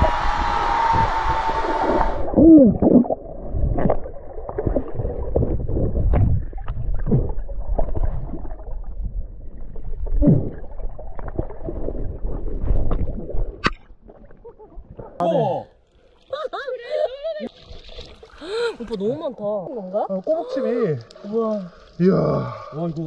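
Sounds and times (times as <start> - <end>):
person shouting underwater: 0.0 - 2.9
muffled underwater rumble: 0.0 - 13.6
knocks underwater: 0.9 - 8.6.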